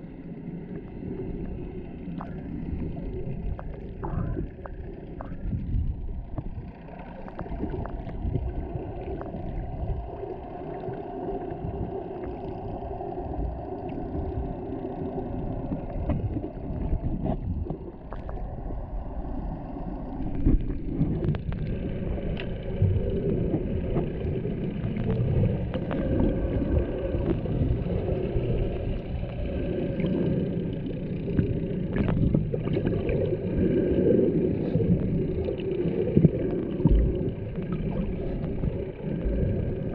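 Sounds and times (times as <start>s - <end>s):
muffled rumble of moving water: 0.0s - 39.9s
sharp underwater clicks: 13.6s - 18.6s, 20.2s - 29.4s, 30.0s - 33.4s.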